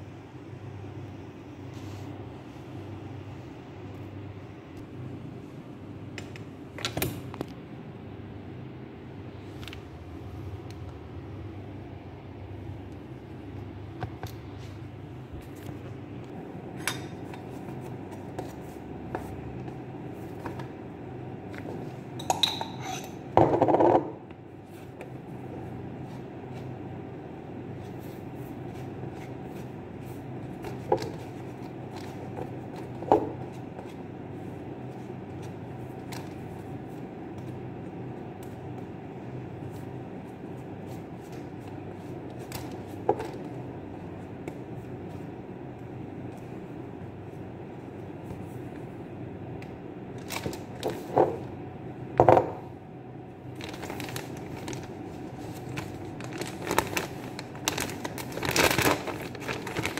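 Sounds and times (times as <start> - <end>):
steady low hum: 0.0 - 59.9
dishes and knife clinking: 22.2 - 23.2.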